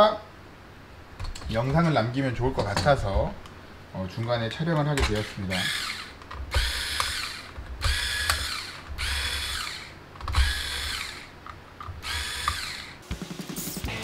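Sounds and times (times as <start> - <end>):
electric screwdriver whirring: 5.0 - 13.0.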